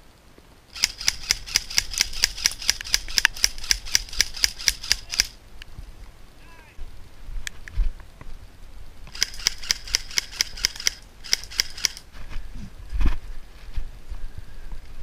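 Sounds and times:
airsoft rifle firing burst: 0.8s - 5.4s, 9.1s - 12.0s.

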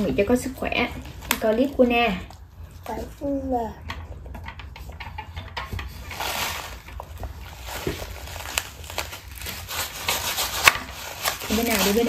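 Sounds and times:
plastic packet crinkling: 6.0s - 12.0s.

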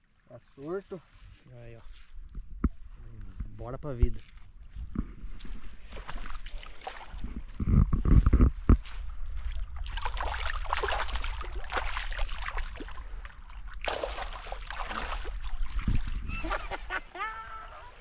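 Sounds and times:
water sloshing and trickling: 3.6s - 17.0s.

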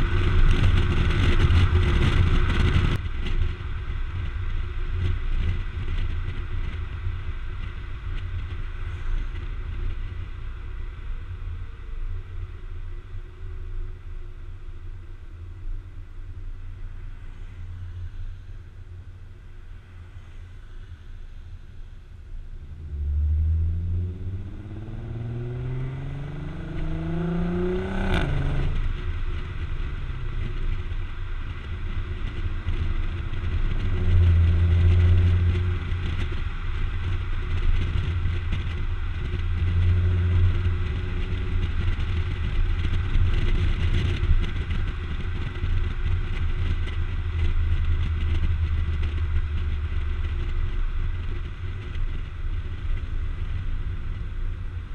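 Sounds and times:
exhaust crack at upshift: 0.0s - 10.2s, 22.6s - 54.9s
wind and road hiss: 0.0s - 54.9s
car exhaust revving: 22.6s - 45.9s.

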